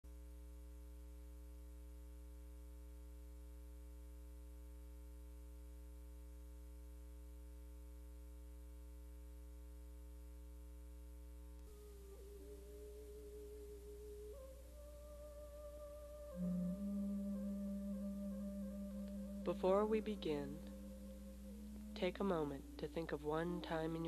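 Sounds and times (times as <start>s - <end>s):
faint electrical hum: 0.1s - 24.0s
held musical tone: 11.7s - 24.0s.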